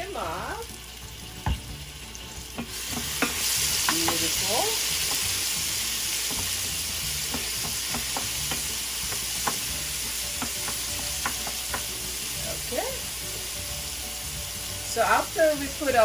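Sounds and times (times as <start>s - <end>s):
garlic and onion sizzling in oil: 0.0s - 16.0s
wooden spoon knocking against pan: 2.6s - 4.3s, 7.3s - 12.0s.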